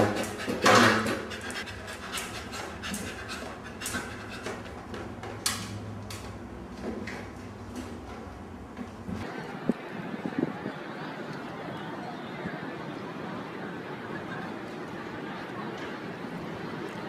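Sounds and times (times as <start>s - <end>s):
dog panting: 0.0s - 4.8s.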